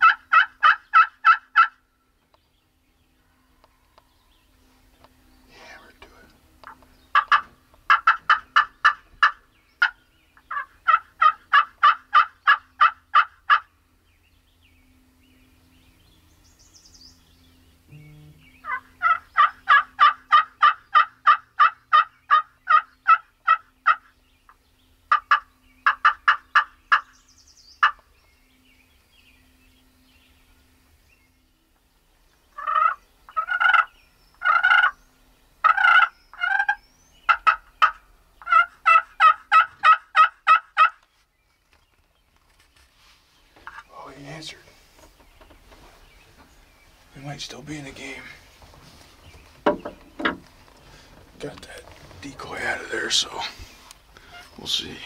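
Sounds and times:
turkey yelping: 0.0 - 1.8, 7.1 - 13.7, 18.6 - 24.1, 25.1 - 27.1, 27.8 - 28.0, 32.6 - 35.0, 35.6 - 41.0
small songbird chirping: 1.8 - 7.8, 8.4 - 10.9, 12.2 - 20.0, 21.8 - 38.6, 40.8 - 55.0.

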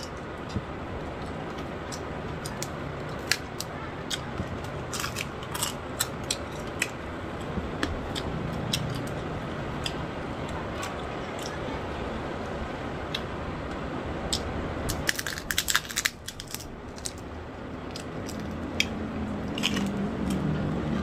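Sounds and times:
person chewing and crunching: 1.2 - 10.0, 14.3 - 20.5.

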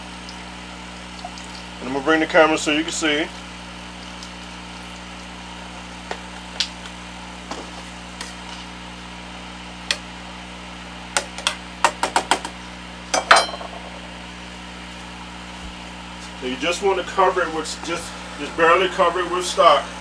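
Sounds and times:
steady electrical hum: 0.0 - 20.0.

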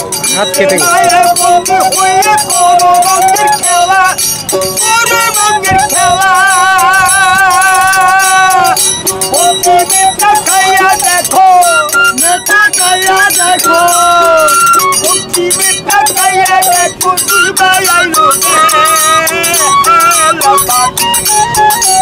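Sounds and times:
bamboo flute melody: 0.0 - 22.0
small hand cymbals striking: 0.0 - 22.0.

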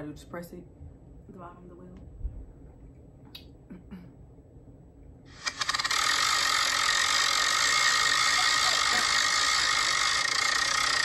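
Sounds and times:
spinning wheel ticking from phone: 5.4 - 11.0.

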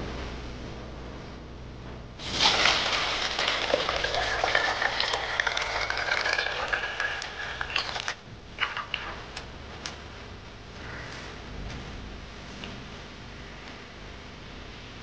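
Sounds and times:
juice pouring onto rice in a pot: 2.2 - 9.2.

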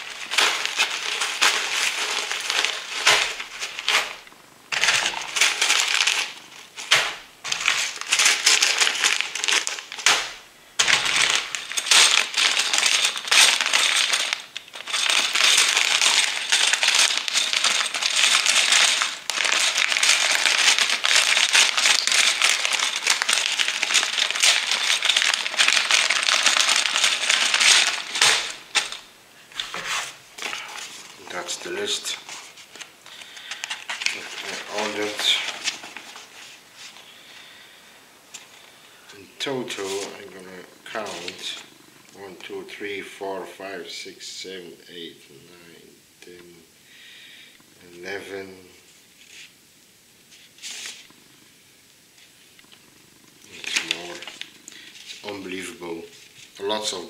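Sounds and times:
plastic bricks rattling: 0.0 - 36.4, 53.4 - 55.7
plastic bags crinkling: 0.0 - 41.8, 52.2 - 57.0.

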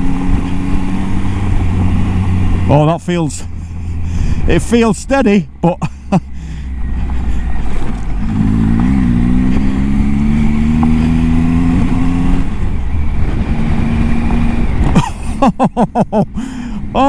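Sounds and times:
motorcycle engine revving: 0.0 - 4.5, 6.7 - 15.5
tyres and wind rumble: 0.0 - 17.0.

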